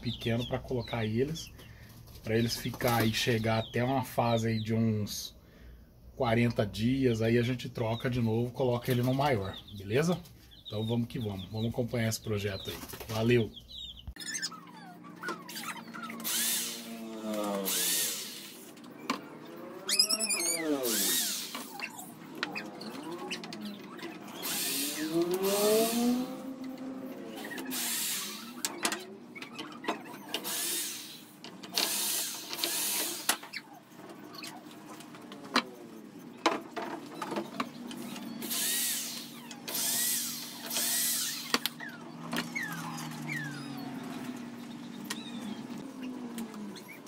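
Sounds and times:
power drill into wood: 16.0s - 18.7s, 19.6s - 22.1s, 22.9s - 26.5s, 27.4s - 28.8s, 30.3s - 33.6s, 38.1s - 44.1s.

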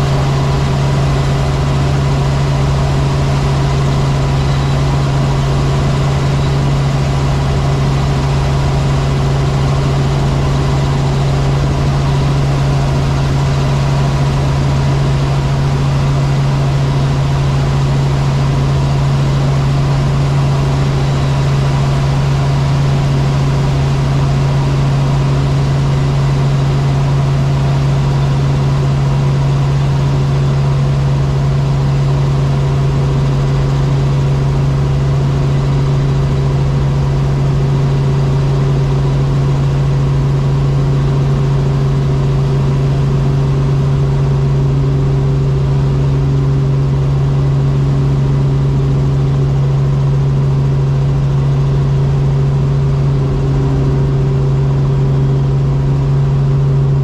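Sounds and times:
helicopter engine and rotors drone: 0.0s - 57.0s
higher tone: 52.0s - 57.0s.

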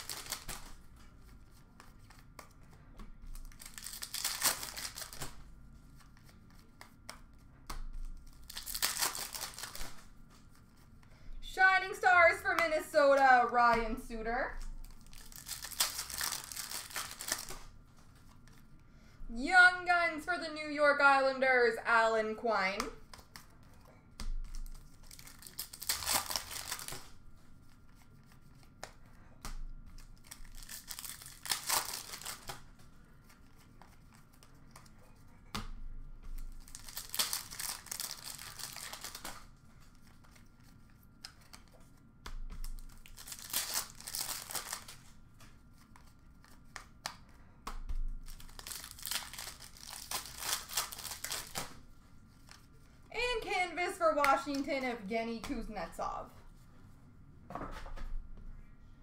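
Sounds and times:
plastic wrappers tearing and crinkling: 0.0s - 0.9s, 3.3s - 5.4s, 8.2s - 10.6s, 14.6s - 17.7s, 24.5s - 27.2s, 30.0s - 32.7s, 36.4s - 41.7s, 42.6s - 45.1s, 48.2s - 51.8s.

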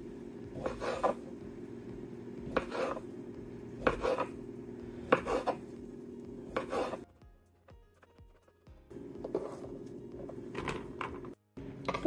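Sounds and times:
steady low hum: 0.0s - 7.0s
knife chopping on wooden board: 0.5s - 1.3s, 2.4s - 3.1s, 3.8s - 4.4s, 5.0s - 5.7s, 6.4s - 7.0s.

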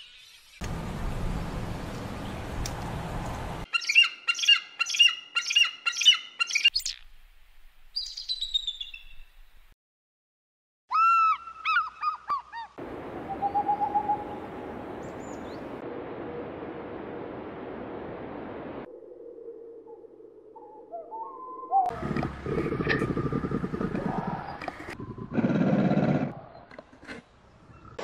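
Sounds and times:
steady outdoor hiss: 0.6s - 3.7s, 12.7s - 18.9s
eagles piping chirps: 3.7s - 6.9s, 10.9s - 14.4s.

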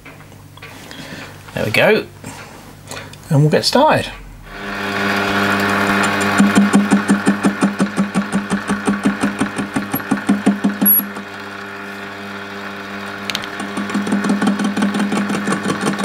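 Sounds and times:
lathe motor and gear hum: 4.2s - 16.0s
cutting tool knocking rhythmically: 5.8s - 11.2s, 13.5s - 16.0s.

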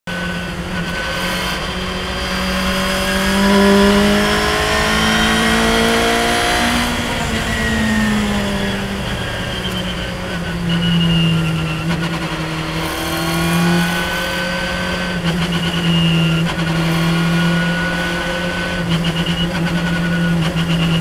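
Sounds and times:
race car engine at full throttle: 0.1s - 21.0s
wind rush: 3.1s - 11.8s.

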